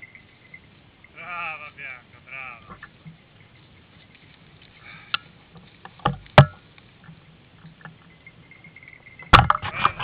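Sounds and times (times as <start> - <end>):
faint rustling: 0.0 - 10.0
twigs knocking and snapping: 3.9 - 8.0.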